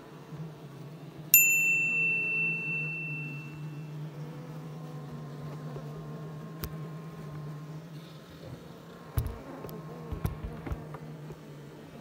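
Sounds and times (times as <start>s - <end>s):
bee colony humming: 0.0s - 12.0s
bright bell ding: 1.4s - 3.9s.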